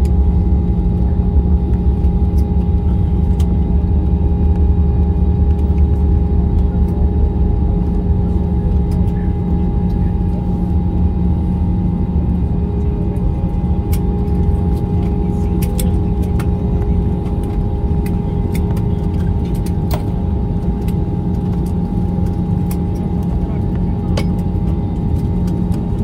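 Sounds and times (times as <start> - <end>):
airliner cabin rumble: 0.0 - 26.0
steady hums: 0.0 - 26.0.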